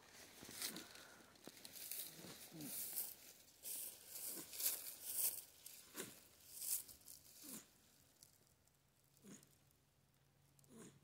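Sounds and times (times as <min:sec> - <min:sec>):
dry grass rustling and crackling: 0:00.0 - 0:08.8.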